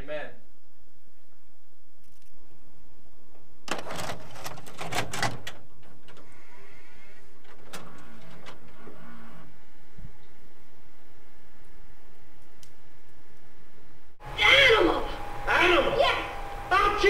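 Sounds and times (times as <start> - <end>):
tape mechanism clicking and clattering: 3.7 - 6.2.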